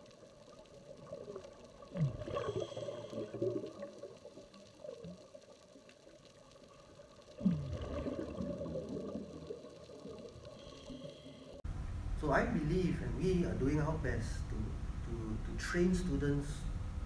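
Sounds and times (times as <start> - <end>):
exhaled bubbles rushing: 0.0 - 5.5, 6.6 - 11.0.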